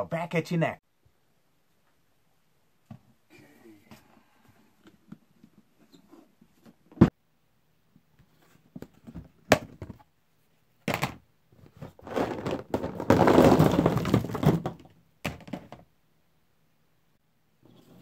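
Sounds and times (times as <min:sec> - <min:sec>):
plastic figures clattering onto table: 0:10.9 - 0:11.2, 0:11.8 - 0:15.8.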